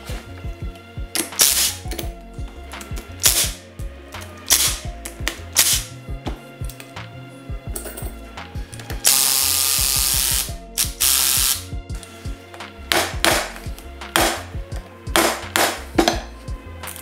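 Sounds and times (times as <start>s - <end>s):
impact driver hammering on bolt: 14.1s - 14.5s.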